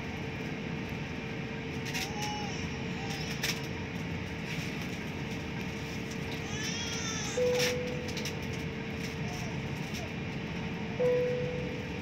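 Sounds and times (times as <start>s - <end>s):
aircraft cabin engine rumble: 0.0s - 12.0s
thin steady hum: 10.2s - 12.0s.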